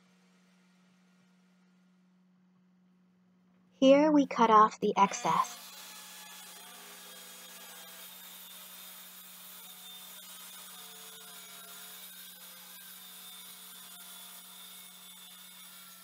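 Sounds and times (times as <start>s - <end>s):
saw cutting wood: 4.9s - 16.0s.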